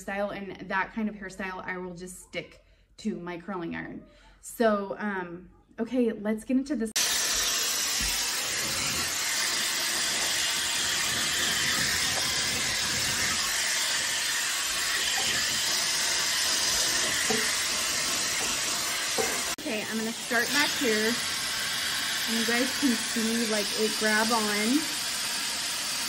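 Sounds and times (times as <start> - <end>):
hair dryer blowing: 7.0 - 26.0.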